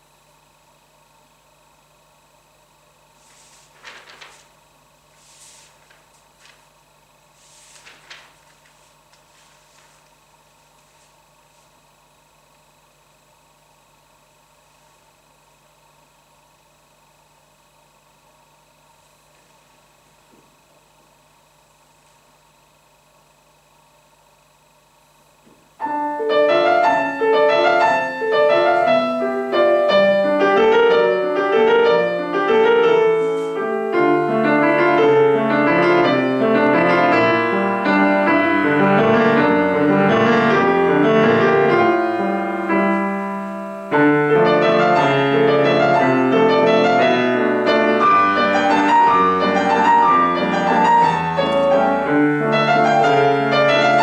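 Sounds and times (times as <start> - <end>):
grand piano four hands: 25.5 - 54.0.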